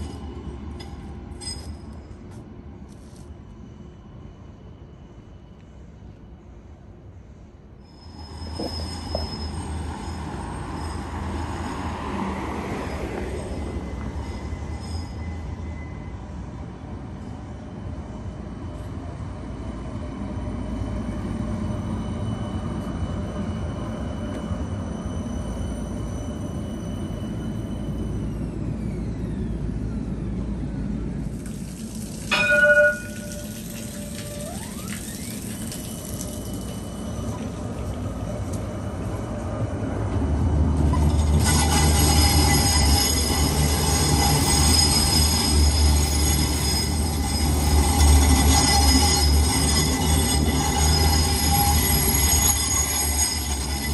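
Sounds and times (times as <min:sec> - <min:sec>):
train rumbling past: 0:00.0 - 0:53.9
wheels squealing on rails: 0:00.0 - 0:53.9
tram gong ding: 0:32.3 - 0:34.9
electric traction motors whining: 0:33.2 - 0:38.6.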